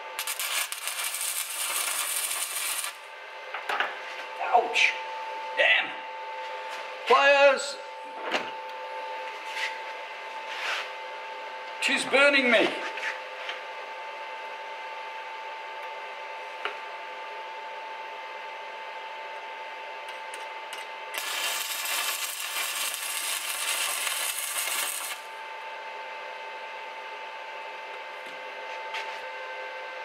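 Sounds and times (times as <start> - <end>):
welding arc crackling: 0.0 - 3.1, 21.1 - 25.4
steady hum: 0.0 - 30.0.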